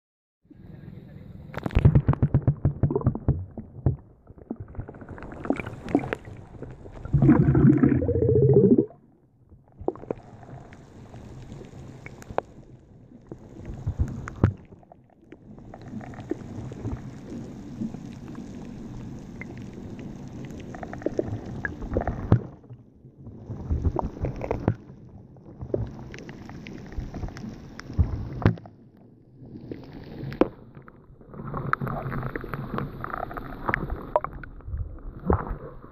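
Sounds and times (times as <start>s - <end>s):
underwater rumbling and gurgling: 0.5s - 35.9s
sharp underwater clicks and knocks: 1.5s - 6.2s.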